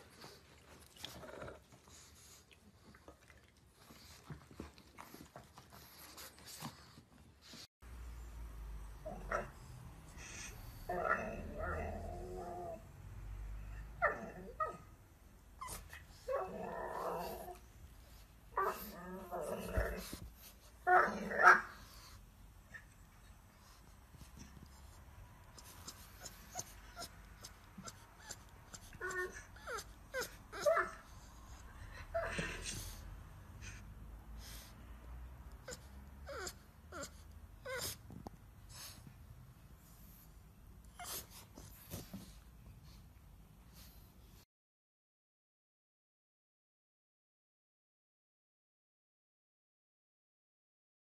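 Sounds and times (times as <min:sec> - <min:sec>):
dog whining: 0:25.6 - 0:33.0, 0:35.6 - 0:38.2, 0:41.0 - 0:42.1.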